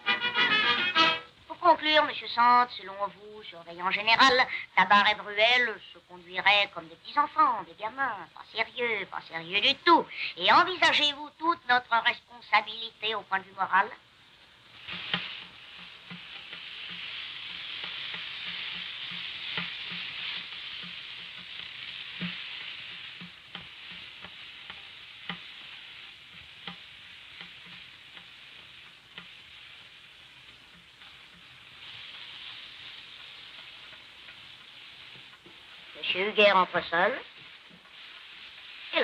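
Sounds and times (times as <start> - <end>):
film soundtrack hiss with pops: 0.0 - 39.0.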